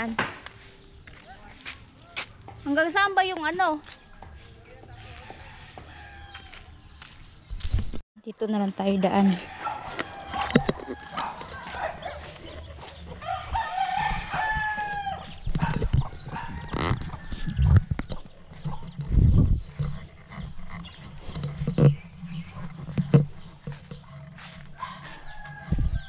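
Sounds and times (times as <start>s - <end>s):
rooster crowing: 4.0s - 6.8s, 9.2s - 18.3s, 24.4s - 26.0s
dull low thumps: 12.3s - 24.8s.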